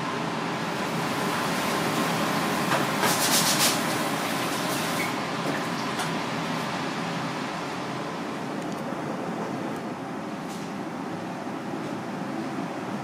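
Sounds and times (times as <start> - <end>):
street food stall hum and hiss: 0.0 - 13.0.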